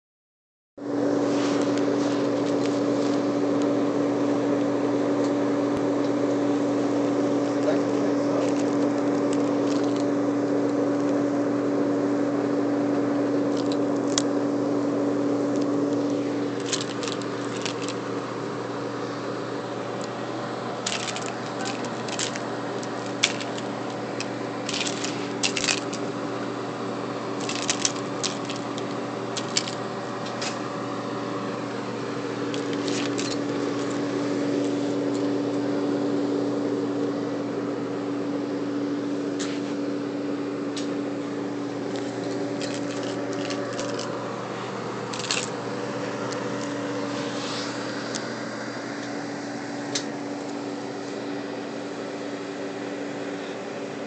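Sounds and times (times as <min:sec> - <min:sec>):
dehumidifier hum and fan whir: 0:00.8 - 0:54.0
keys jingling: 0:07.6 - 0:10.1, 0:13.5 - 0:14.2, 0:16.6 - 0:18.0, 0:20.9 - 0:26.1, 0:27.4 - 0:30.6, 0:32.5 - 0:34.1, 0:41.9 - 0:44.1, 0:45.1 - 0:45.6.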